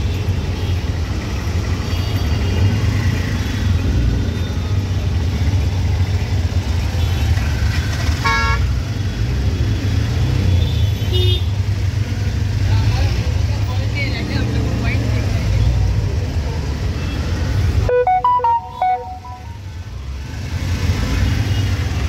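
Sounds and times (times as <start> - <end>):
auto-rickshaw engine rumbling: 0.0 - 17.9, 19.6 - 22.0
traffic noise: 0.0 - 22.0
faint high beep: 17.9 - 19.6
vehicle horn honking: 17.9 - 19.6.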